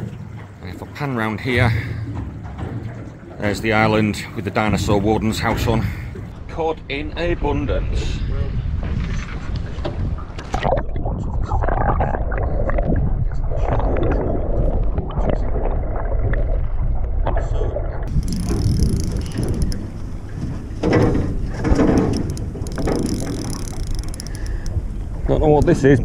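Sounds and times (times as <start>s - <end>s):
muffled underwater rushing water: 0.0s - 26.0s
hiss of wind and water: 18.1s - 26.0s.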